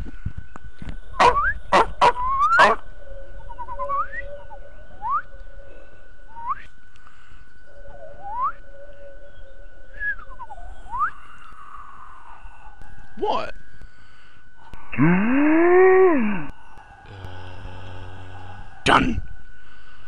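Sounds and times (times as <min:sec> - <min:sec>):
faint steady tone: 0:00.0 - 0:20.0
whistled birdsong chirps: 0:00.4 - 0:14.6.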